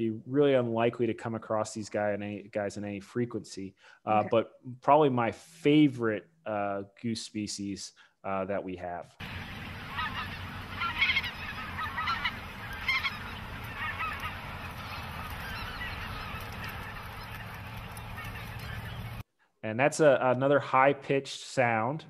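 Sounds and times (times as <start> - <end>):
geese calling: 9.2 - 19.2.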